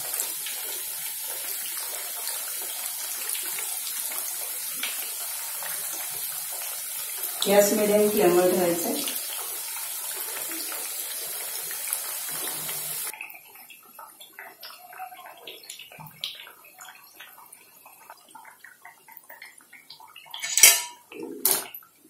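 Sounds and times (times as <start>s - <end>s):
food sizzling in hot oil: 0.0s - 13.6s
oil crackling and popping: 9.3s - 22.0s.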